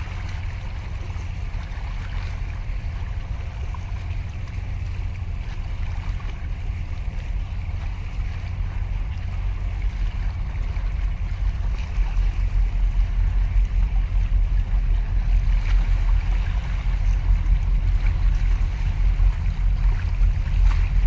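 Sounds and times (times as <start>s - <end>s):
waves splashing against concrete: 0.0s - 21.0s
wind buffeting microphone: 5.0s - 21.0s.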